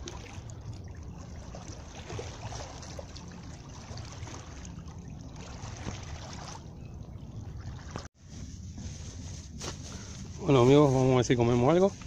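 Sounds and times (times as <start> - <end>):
steady low rumble: 0.0 - 5.8.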